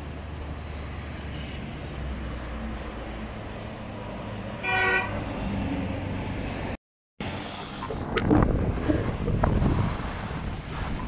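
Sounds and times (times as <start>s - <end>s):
road traffic rumble: 0.0s - 11.0s
vehicle horn toot: 4.6s - 5.2s.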